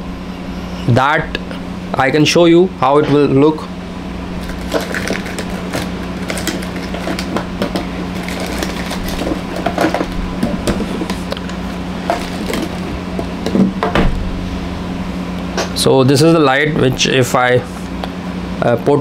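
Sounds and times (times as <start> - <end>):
steady low hum: 0.0 - 19.0
clicks and rustles of handling: 4.4 - 13.6.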